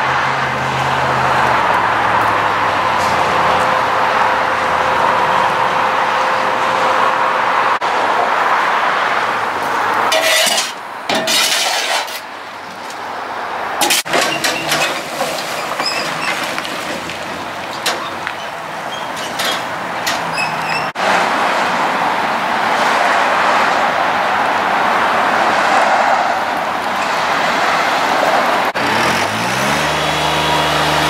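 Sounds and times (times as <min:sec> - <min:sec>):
shovel scraping gravel on steel: 0:10.1 - 0:12.3, 0:13.8 - 0:20.9.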